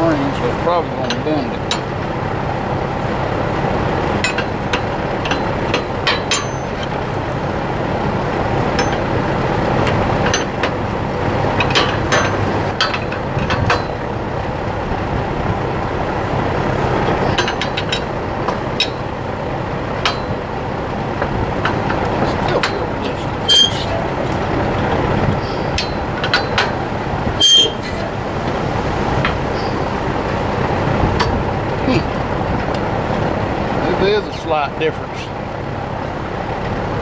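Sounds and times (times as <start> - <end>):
wrench clinking against bolt: 17.2 - 19.0.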